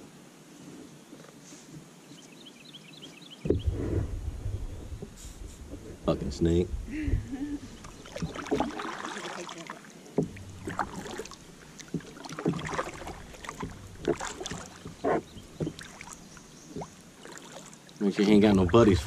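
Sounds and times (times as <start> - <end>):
kayak paddle splashing: 3.5 - 19.0
water dripping: 7.4 - 19.0.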